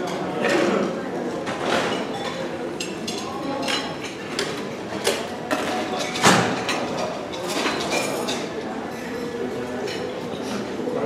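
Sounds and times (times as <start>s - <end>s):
dishes and utensils clinking: 0.0s - 10.9s
murmur of room: 0.0s - 11.0s.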